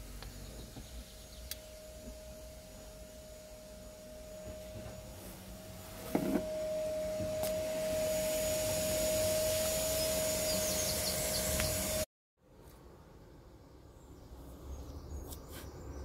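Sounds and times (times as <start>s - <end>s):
motor whine: 0.0s - 12.1s
hiss of air: 7.0s - 12.1s.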